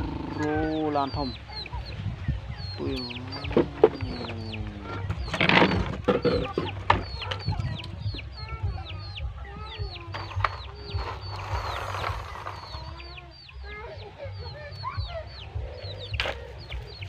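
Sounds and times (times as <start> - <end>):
chickens clucking: 0.0 - 17.0
chicks peeping: 0.0 - 17.0
knocks and clatter: 3.4 - 7.9.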